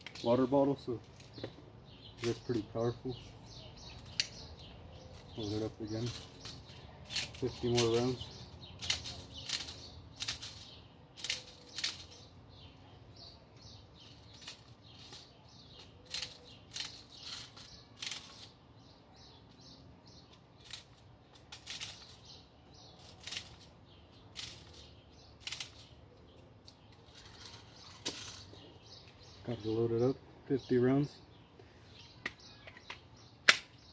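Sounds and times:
sharp plastic clicks: 0:03.8 - 0:04.5, 0:06.1 - 0:12.2, 0:24.3 - 0:28.4, 0:32.2 - 0:33.9.

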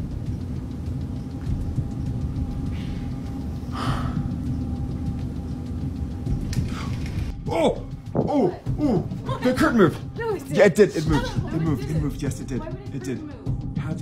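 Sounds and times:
faint steady hum: 0:00.0 - 0:07.4.

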